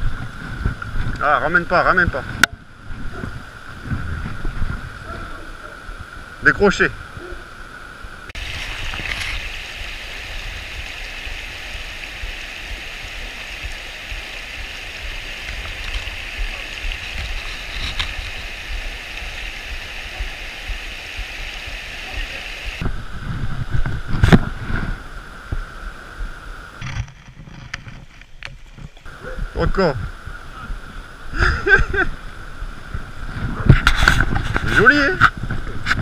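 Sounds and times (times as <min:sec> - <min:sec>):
river water rushing over rocks: 0:07.4 - 0:23.2.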